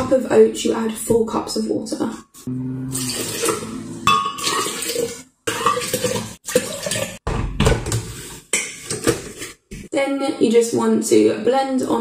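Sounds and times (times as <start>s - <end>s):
glass clinking: 3.0s - 4.8s
water pouring and splashing: 4.3s - 7.2s.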